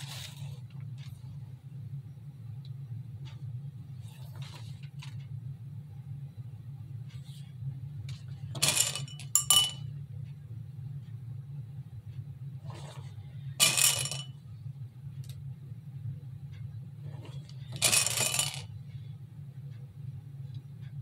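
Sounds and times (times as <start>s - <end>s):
steady low hum: 0.0s - 21.0s
decorations clinking in glass bowl: 8.6s - 9.9s.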